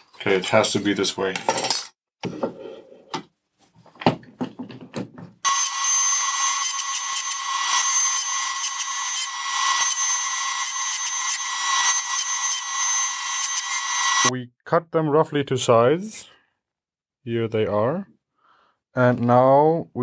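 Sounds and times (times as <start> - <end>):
table saw running: 5.5 - 14.3.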